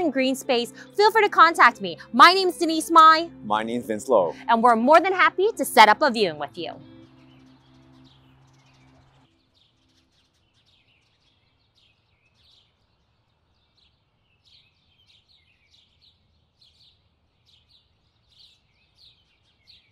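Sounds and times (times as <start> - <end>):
faint birds chirping: 5.5 - 19.9.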